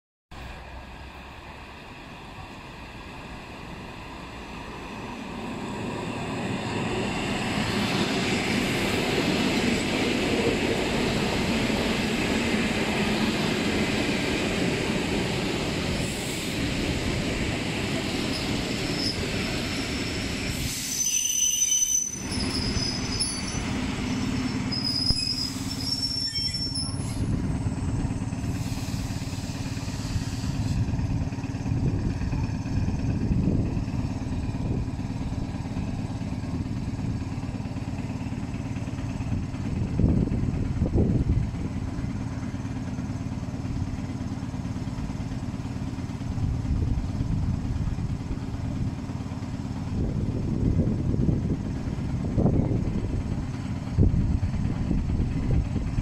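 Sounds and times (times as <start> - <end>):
wheel and brake squeals: 18.3 - 30.8.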